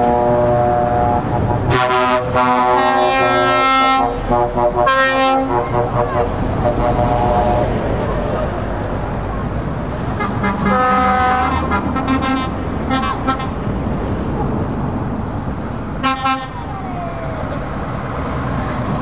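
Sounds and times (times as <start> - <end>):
truck air horn blasts: 0.0 - 7.8, 10.1 - 13.6, 16.0 - 16.7
truck engines rumbling: 0.0 - 19.0.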